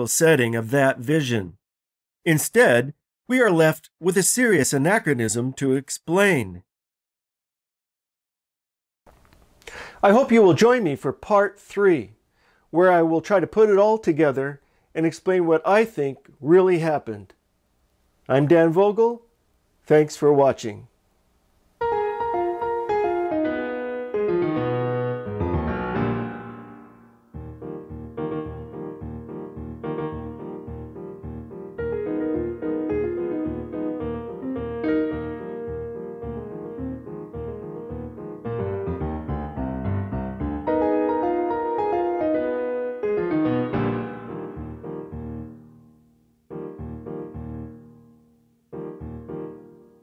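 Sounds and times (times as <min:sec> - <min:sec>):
piano music: 0:21.8 - 0:50.0.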